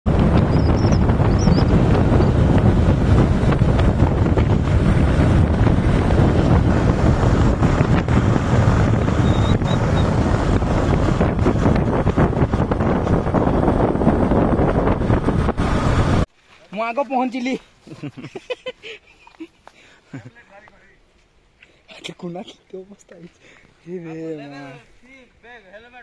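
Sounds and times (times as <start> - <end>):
motorcycle riding: 0.0 - 16.3
wind buffeting microphone: 0.0 - 16.3.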